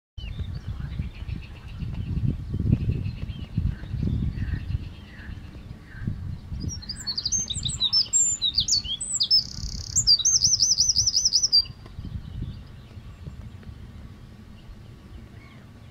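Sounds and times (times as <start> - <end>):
wren singing: 0.2 - 13.4.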